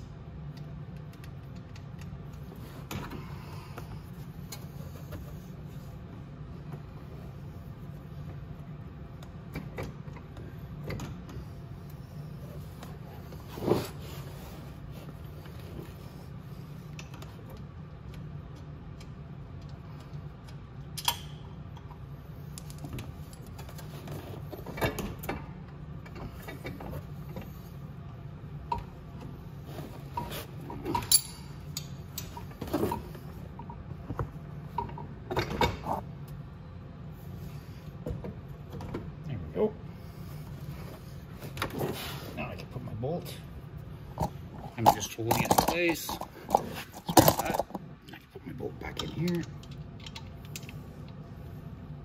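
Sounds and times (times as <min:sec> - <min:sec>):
steady low hum: 0:00.0 - 0:52.0
metallic clinks and knocks: 0:30.9 - 0:32.5.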